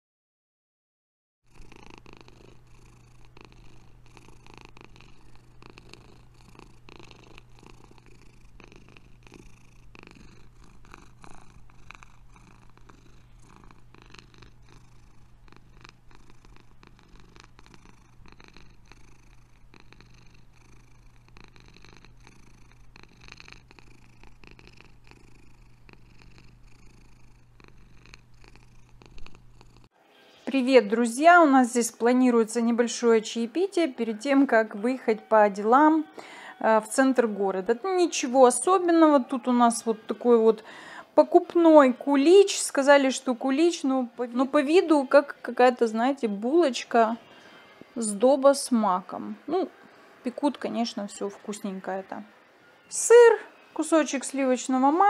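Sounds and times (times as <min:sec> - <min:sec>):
cat purring: 0:01.5 - 0:29.9.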